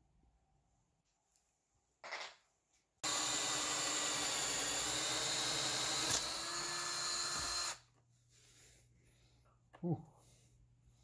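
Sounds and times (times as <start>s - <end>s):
cordless drill whining: 3.0s - 7.9s.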